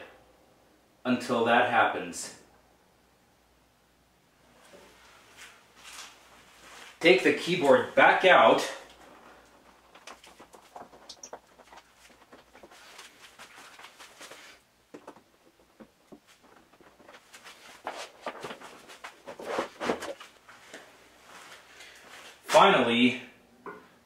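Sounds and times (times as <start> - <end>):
wooden knocks and clatter: 9.5 - 17.4.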